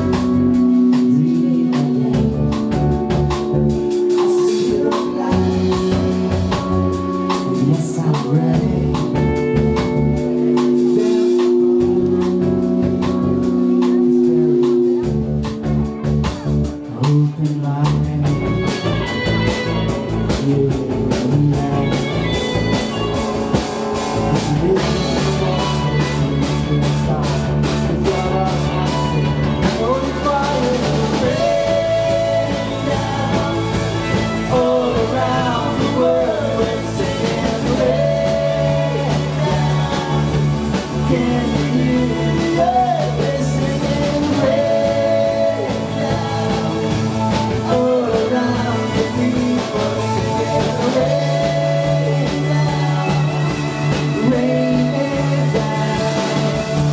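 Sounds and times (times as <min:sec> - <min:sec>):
live band playing worship song: 0:00.0 - 0:56.9.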